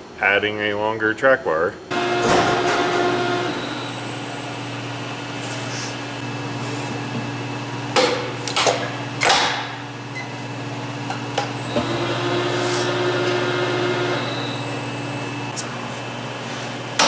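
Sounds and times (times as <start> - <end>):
motor humming: 1.9 - 7.6, 10.0 - 16.2.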